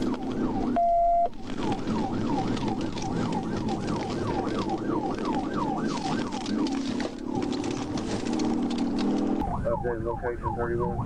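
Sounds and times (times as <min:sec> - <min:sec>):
police siren yelping: 0:00.0 - 0:11.0
road noise: 0:00.0 - 0:11.0.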